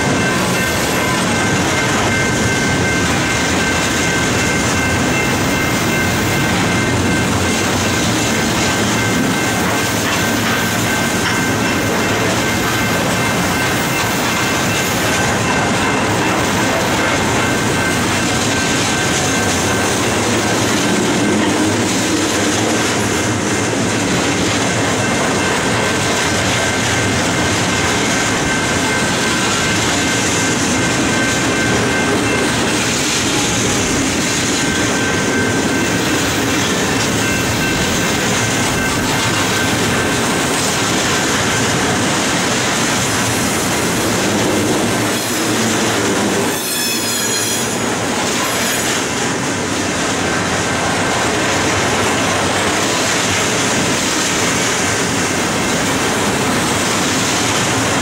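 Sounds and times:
train wheels clattering on rails: 0:00.0 - 0:58.0
wheels squealing: 0:45.1 - 0:49.0.

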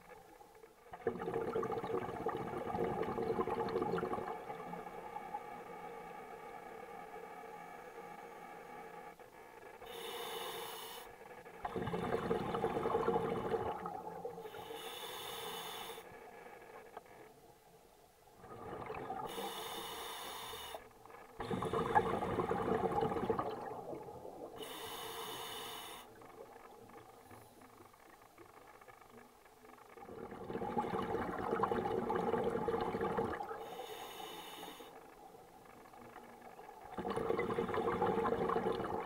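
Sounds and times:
scuba regulator hissing inhalations: 0:09.8 - 0:11.2, 0:14.5 - 0:16.3, 0:19.2 - 0:22.3, 0:24.6 - 0:26.2, 0:33.6 - 0:35.0
bubbling exhalations: 0:21.4 - 0:24.7, 0:36.9 - 0:39.0.

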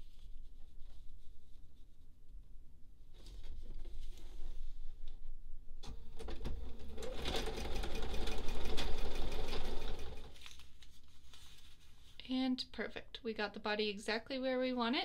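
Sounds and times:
sewing machine stitching: 0:06.1 - 0:10.4
fabric handling: 0:10.3 - 0:12.3.

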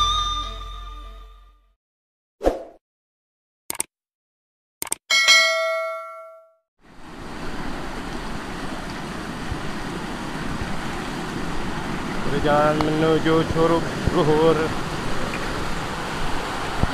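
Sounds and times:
notification bell ding: 0:00.0 - 0:01.3, 0:05.1 - 0:06.6
waterfall rushing: 0:06.9 - 0:16.9.

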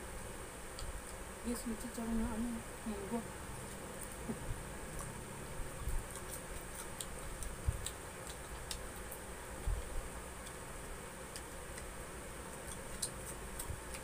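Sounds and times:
chewing and lip smacks: 0:03.6 - 0:09.8, 0:11.3 - 0:14.0.

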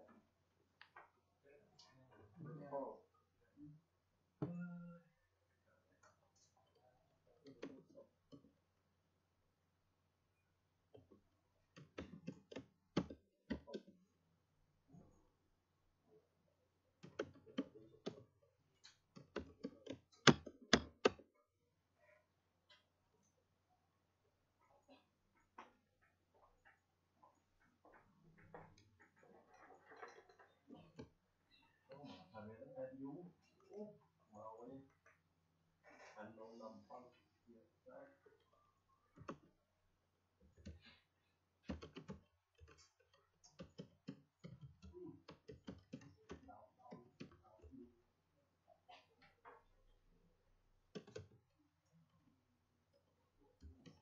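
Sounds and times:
faint keyboard typing: 0:17.0 - 0:21.3, 0:39.1 - 0:39.6, 0:40.4 - 0:47.9, 0:50.9 - 0:51.6
computer keyboard typing: 0:41.7 - 0:42.8, 0:43.5 - 0:47.4, 0:51.0 - 0:51.3.

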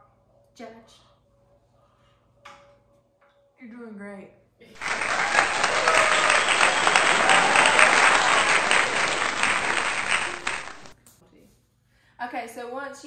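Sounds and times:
crowd applause: 0:04.8 - 0:10.9.

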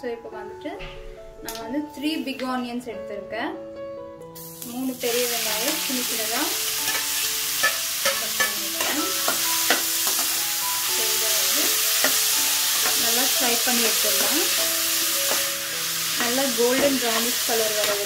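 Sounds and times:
onions sizzling in oil: 0:04.4 - 0:18.0
spatula clicking and scraping pan: 0:06.9 - 0:10.3.

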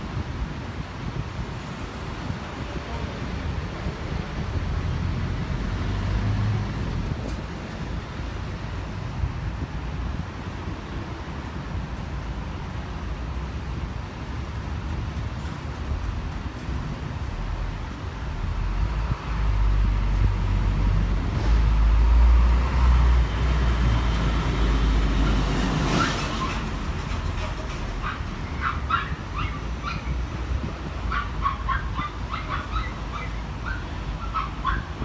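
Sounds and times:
traffic rumble: 0:00.0 - 0:35.0
passing vehicle hiss: 0:00.4 - 0:31.1.

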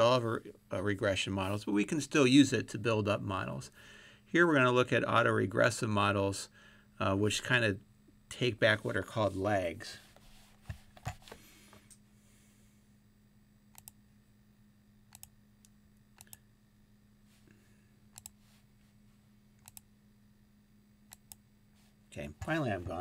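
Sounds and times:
faint low hum: 0:00.0 - 0:23.0
computer mouse clicks: 0:13.7 - 0:14.0, 0:15.1 - 0:16.4, 0:18.1 - 0:18.4, 0:19.6 - 0:19.9, 0:21.1 - 0:21.4.

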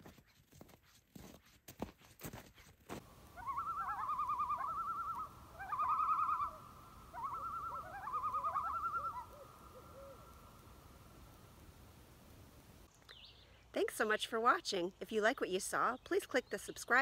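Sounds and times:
footsteps crunching on snow: 0:00.0 - 0:03.4
faint steady tone: 0:03.0 - 0:13.8
trilling bird call: 0:03.2 - 0:10.8.

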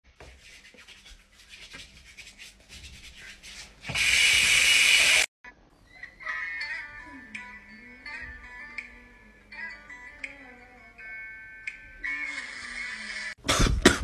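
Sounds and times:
rhythmic rubbing strokes: 0:00.2 - 0:05.3.

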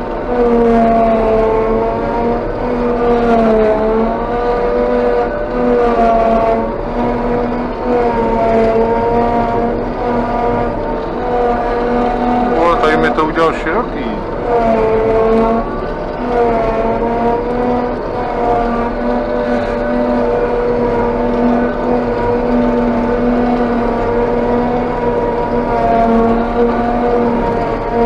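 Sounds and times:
forage harvester engine drone: 0:00.0 - 0:28.0.

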